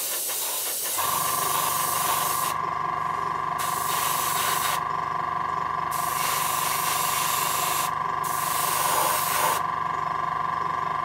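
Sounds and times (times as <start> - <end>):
airbrush hissing: 0.0 - 2.6, 3.6 - 4.8, 5.9 - 9.6
airbrush compressor pulsing hum: 0.0 - 11.0.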